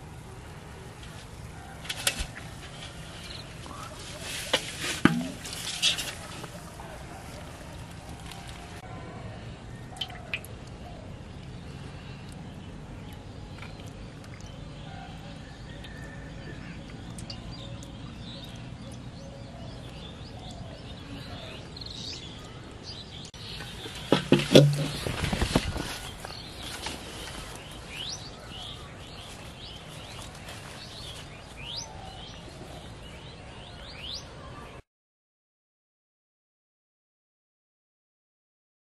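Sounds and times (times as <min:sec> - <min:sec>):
low background noise: 0:00.0 - 0:34.8
water splashes and drips: 0:09.9 - 0:10.8, 0:11.4 - 0:14.9, 0:16.8 - 0:19.1.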